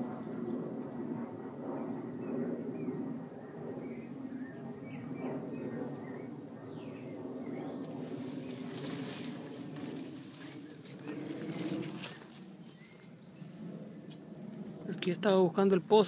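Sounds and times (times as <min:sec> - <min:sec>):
high insect whine: 0:00.0 - 0:16.0
leaves rustling: 0:07.4 - 0:13.6
bird chirps: 0:12.0 - 0:13.4.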